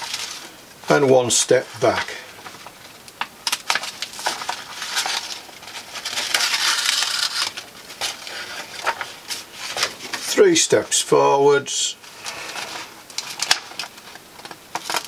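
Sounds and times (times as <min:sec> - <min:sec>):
paper crackling and rustling: 0:00.0 - 0:00.6, 0:01.8 - 0:10.4, 0:12.0 - 0:15.0.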